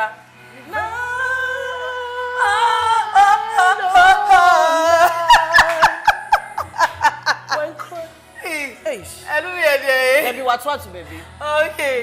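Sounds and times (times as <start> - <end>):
person singing: 0.6 - 6.0.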